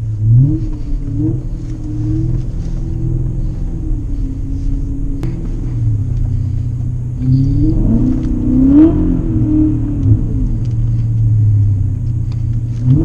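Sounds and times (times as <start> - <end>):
car engine revving from inside cabin: 0.0 - 13.0.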